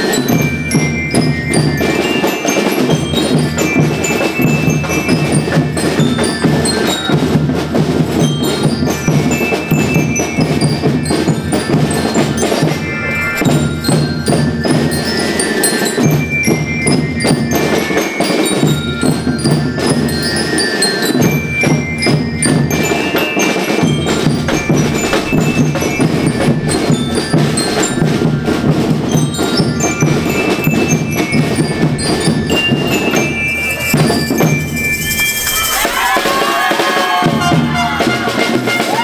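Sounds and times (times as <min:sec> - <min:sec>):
bell lyres playing melody: 0:00.0 - 0:39.0
bass drum strokes: 0:23.8 - 0:35.5.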